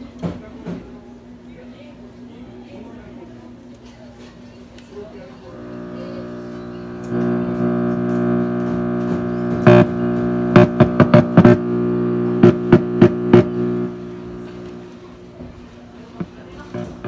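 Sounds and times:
amplifier hum-buzz: 5.5s - 15.4s, 16.2s - 17.0s
amplifier pops and crackles: 5.6s - 15.0s.

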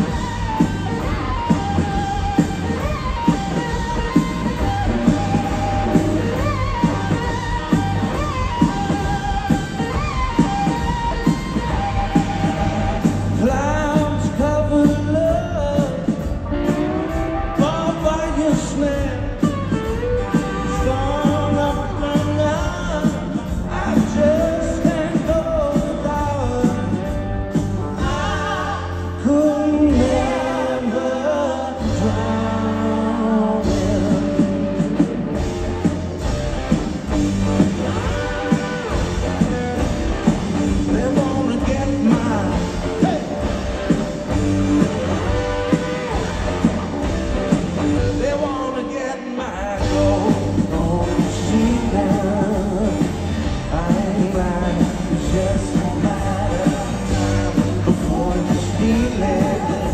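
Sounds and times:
live rock band playing: 0.0s - 59.9s
male lead singing: 12.2s - 16.4s, 17.4s - 19.5s, 20.3s - 27.2s, 27.9s - 35.0s, 40.7s - 43.5s, 48.0s - 59.9s.

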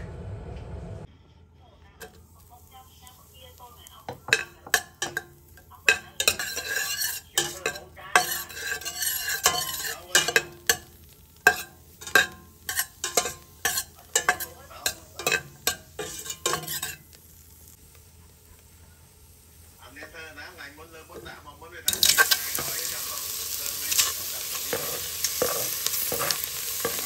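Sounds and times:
light sizzle of frying: 2.0s - 27.0s
metal utensil scraping a pot: 4.1s - 17.1s, 21.9s - 27.0s.

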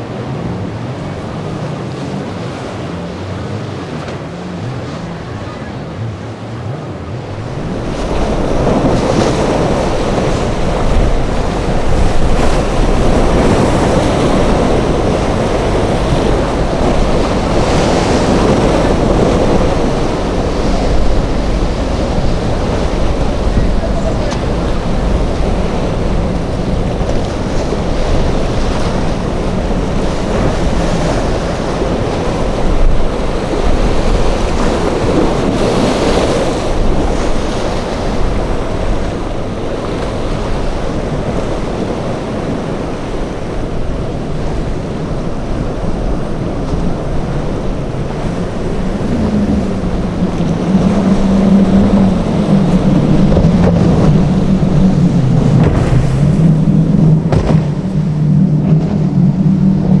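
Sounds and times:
boat engines droning: 0.0s - 60.0s
surf: 0.0s - 60.0s
wind buffeting microphone: 0.0s - 60.0s.

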